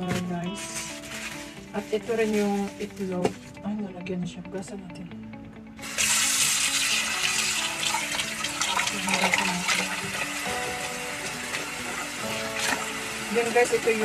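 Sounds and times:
kitchen tap water running: 5.8s - 14.0s
water pouring into pot: 5.8s - 14.0s.

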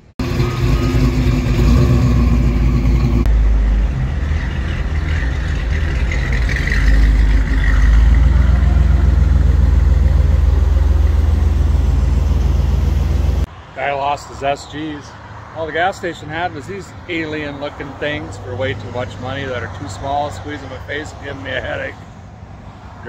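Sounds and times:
car engine idling: 0.0s - 13.5s
deep pulsing exhaust idle: 0.2s - 13.5s.

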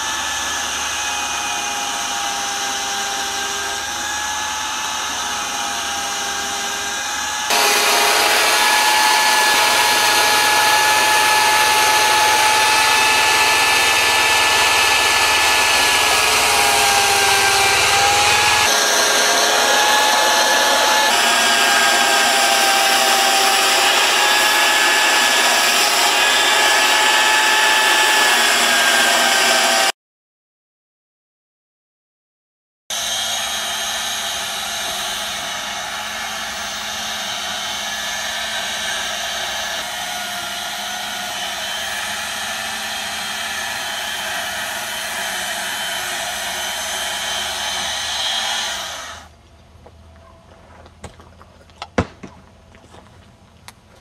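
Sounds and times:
electric chainsaw cutting wood: 0.0s - 30.0s, 32.9s - 49.4s.

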